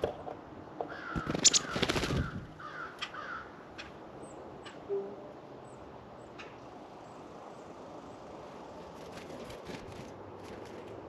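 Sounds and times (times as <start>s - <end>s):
harsh bird calls: 0.8s - 6.6s.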